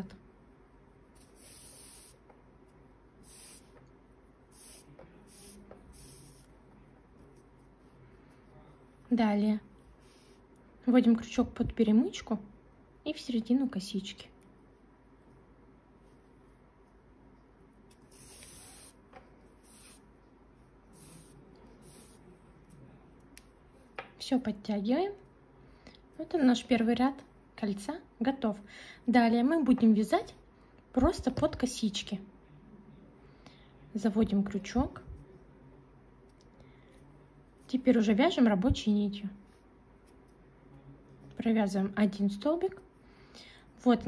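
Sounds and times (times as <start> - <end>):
cord rubbing through stitches: 1.1 - 2.3, 3.2 - 3.8, 4.5 - 8.6, 17.9 - 22.8.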